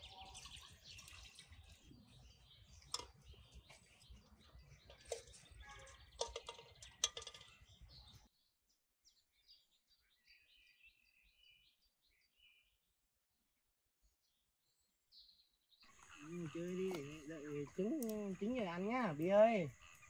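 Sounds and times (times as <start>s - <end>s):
faint bird chirping: 0.0s - 13.1s, 14.2s - 20.0s
sharp knocks and clatter: 5.0s - 7.6s.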